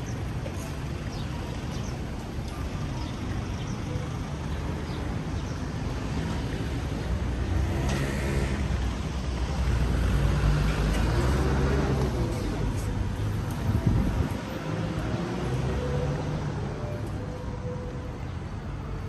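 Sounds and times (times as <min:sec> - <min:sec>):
road noise: 0:00.0 - 0:19.0
vehicle passing by: 0:09.6 - 0:16.6.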